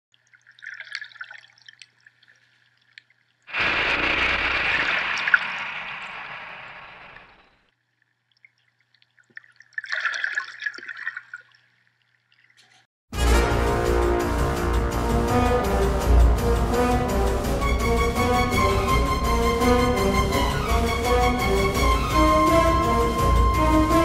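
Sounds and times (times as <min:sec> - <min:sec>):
loud rush of water: 0:03.5 - 0:07.4.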